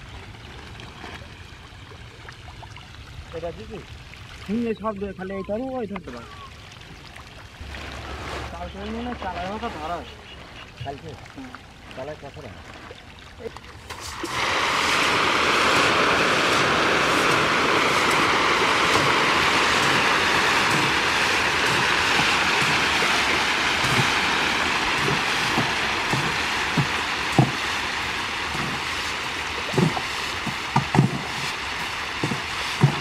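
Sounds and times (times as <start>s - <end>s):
fish splashing at surface: 6.2s - 11.5s, 12.6s - 33.0s
water plops and slaps: 17.1s - 33.0s.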